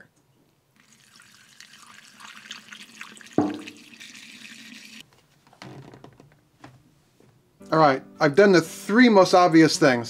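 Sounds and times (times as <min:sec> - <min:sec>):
fuel pouring through funnel: 0:00.8 - 0:05.0.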